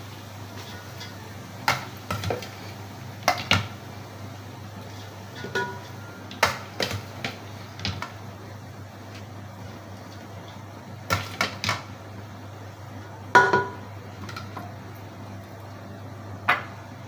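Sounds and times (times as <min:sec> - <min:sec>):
steady low hum: 0:00.0 - 0:17.0
steel kitchenware clinking: 0:05.4 - 0:06.2.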